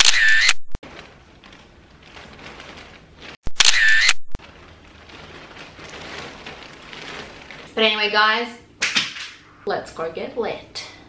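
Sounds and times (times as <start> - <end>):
camera shutter clicking: 0.0 - 0.6, 3.6 - 4.2.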